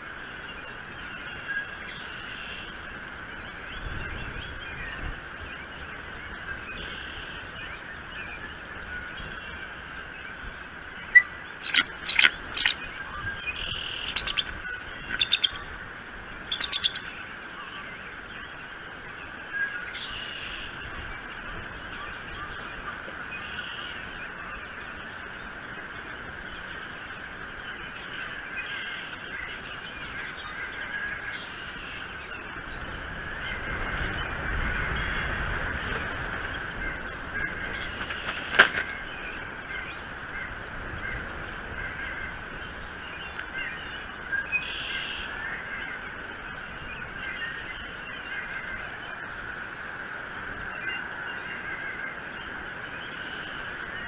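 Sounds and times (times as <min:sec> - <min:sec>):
rain on microphone: 0:00.0 - 0:54.0
wind: 0:00.0 - 0:54.0
short bird calls: 0:11.0 - 0:15.7, 0:16.5 - 0:17.1.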